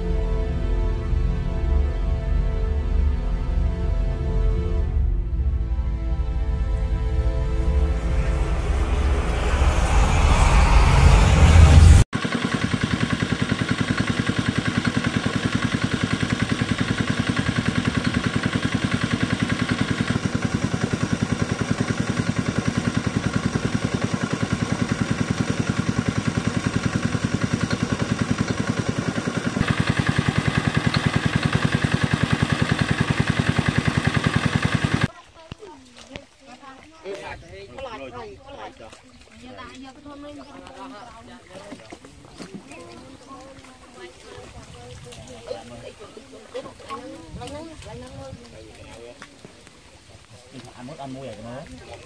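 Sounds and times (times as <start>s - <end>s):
intro music: 4.6s - 12.1s
small diesel engine running: 6.8s - 35.1s.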